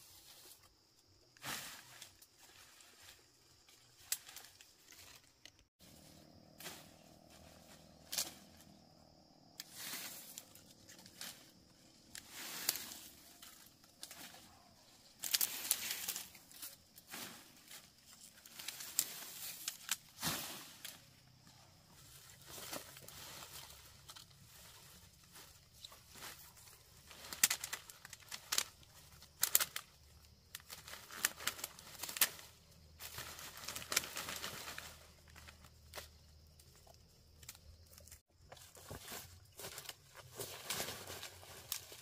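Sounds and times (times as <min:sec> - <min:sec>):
rustling and crinkling handling noises: 0:20.8 - 0:42.0.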